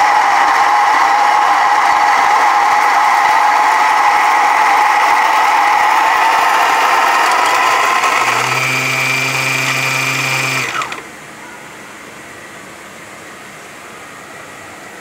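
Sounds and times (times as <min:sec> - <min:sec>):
coffee grinder whining: 0:00.0 - 0:11.1
motor spinning down: 0:00.0 - 0:11.1.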